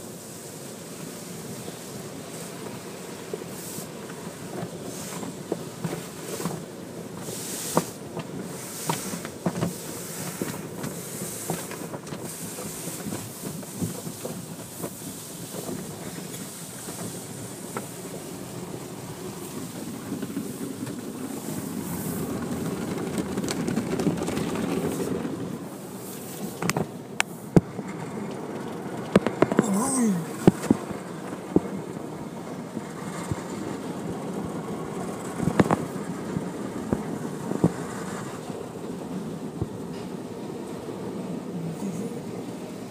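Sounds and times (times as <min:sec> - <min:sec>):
water spray and brushes washing: 0:02.3 - 0:27.5.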